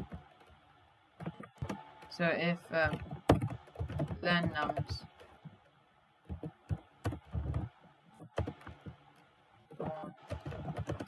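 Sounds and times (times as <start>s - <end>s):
typing on keyboard: 2.8s - 5.4s, 6.2s - 9.0s, 9.7s - 11.0s.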